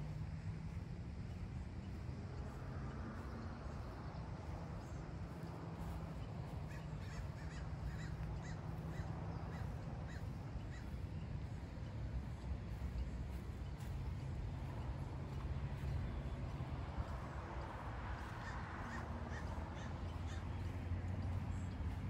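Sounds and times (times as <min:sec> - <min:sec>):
steady low rumble: 0:00.0 - 0:22.0
bird calling: 0:05.8 - 0:11.4, 0:18.2 - 0:22.0.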